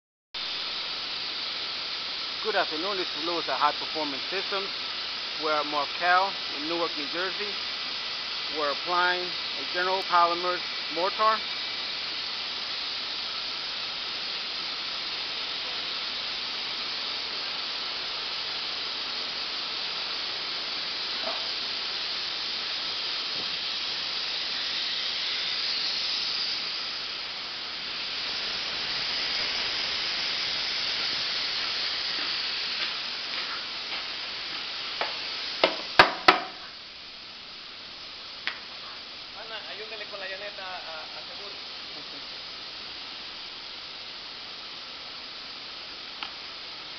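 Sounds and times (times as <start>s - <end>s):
steady hissing: 0.4s - 46.9s
sharp knocks: 35.0s - 36.6s.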